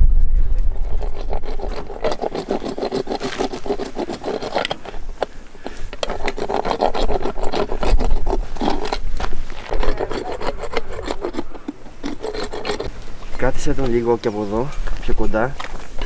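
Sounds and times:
dental rasp scraping teeth: 0.8s - 12.9s.

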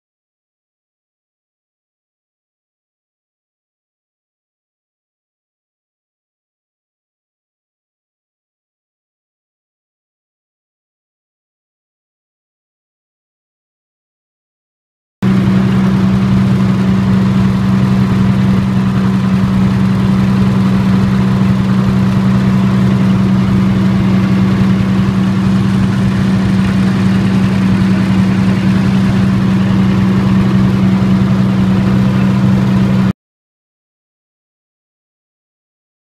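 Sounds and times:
diesel generator humming: 15.2s - 33.1s.

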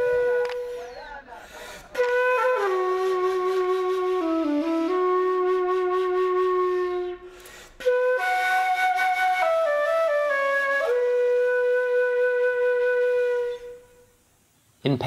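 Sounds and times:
solo flute playing slow notes: 0.0s - 14.2s.

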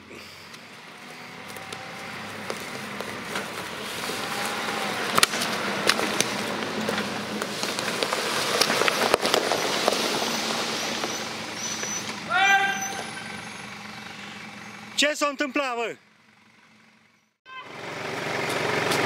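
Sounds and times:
off-road vehicle engine: 0.0s - 19.0s
tyres crunching over twigs and stones: 0.4s - 12.2s.

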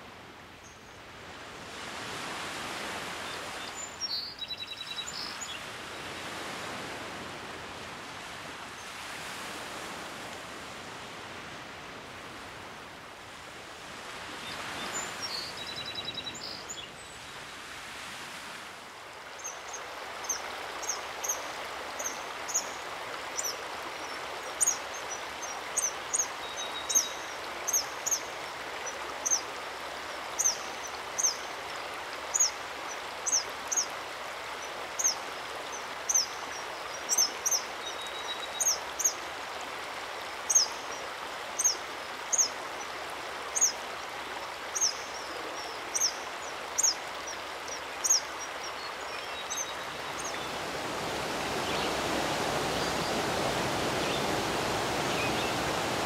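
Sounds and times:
river rapids rushing: 19.7s - 56.0s.

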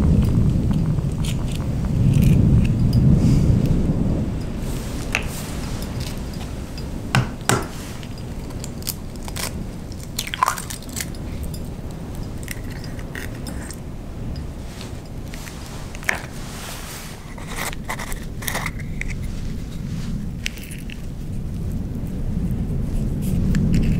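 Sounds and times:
eggshells cracking: 0.0s - 2.8s, 5.9s - 14.4s, 17.2s - 19.3s
low rumble of wind: 0.0s - 23.9s.

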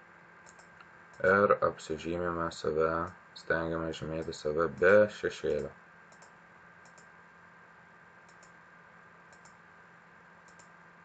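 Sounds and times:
computer mouse clicking: 0.4s - 1.3s, 6.1s - 7.1s, 8.3s - 8.6s, 9.3s - 9.6s, 10.4s - 10.8s.

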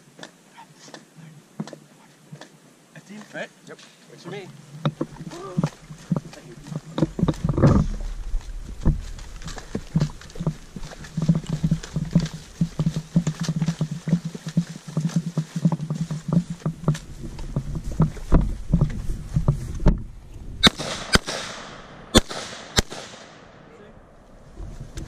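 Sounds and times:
gear and body dragging through grass: 3.0s - 20.7s, 24.3s - 25.0s
rifle shots with ringing echo: 20.6s - 24.2s.

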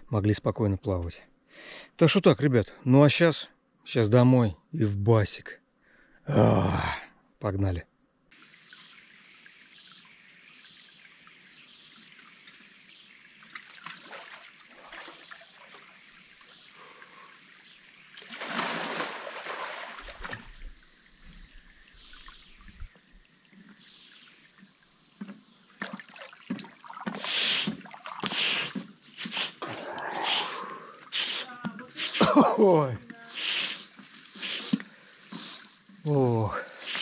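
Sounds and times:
water trickling faintly: 8.3s - 37.0s
person splashing through pool: 13.5s - 15.8s, 18.2s - 20.6s, 25.8s - 33.8s
loud water splash: 18.2s - 20.4s.

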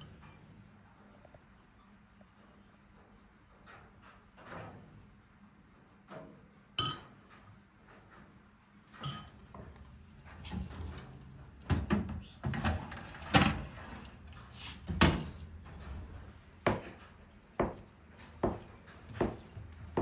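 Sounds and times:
oven door opening: 10.2s - 16.4s.

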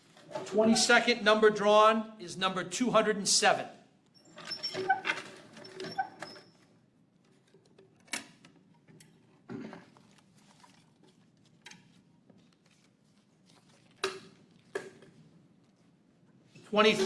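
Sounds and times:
paper rustling: 9.8s - 16.0s.

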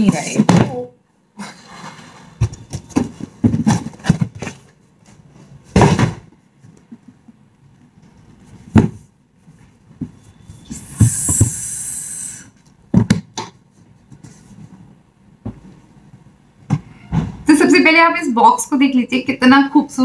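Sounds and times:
box thumps: 2.4s - 4.7s, 5.6s - 7.0s, 8.6s - 9.1s, 12.9s - 13.6s.

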